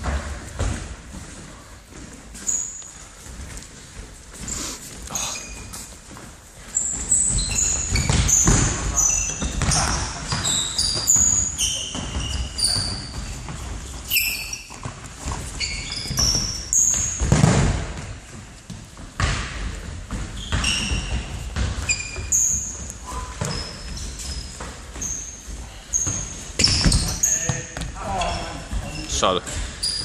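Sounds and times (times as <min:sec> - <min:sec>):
trainers squeaking on floor: 0:02.3 - 0:03.3, 0:04.3 - 0:06.0, 0:06.6 - 0:17.4, 0:20.0 - 0:30.0
ball kicked and bouncing: 0:06.9 - 0:14.0, 0:14.7 - 0:25.3, 0:26.0 - 0:28.0.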